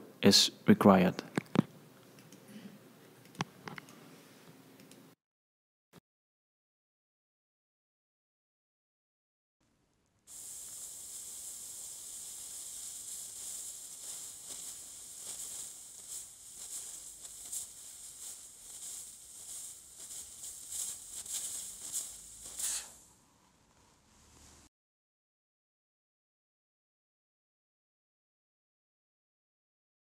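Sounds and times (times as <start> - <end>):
cryosurgery pen hissing: 10.3 - 23.2.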